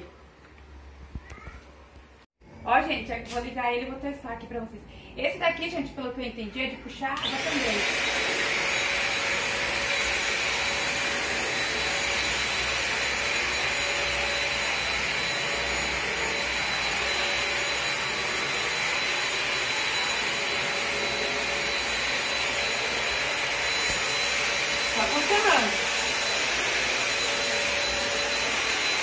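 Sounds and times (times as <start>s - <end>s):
vacuum cleaner whining: 7.2s - 29.0s.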